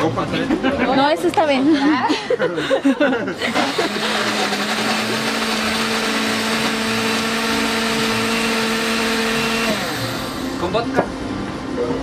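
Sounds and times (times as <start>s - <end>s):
blender motor running: 3.4s - 10.8s.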